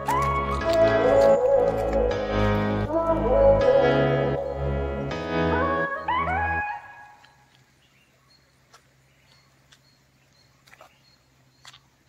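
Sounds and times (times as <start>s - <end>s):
background music: 0.0s - 7.2s.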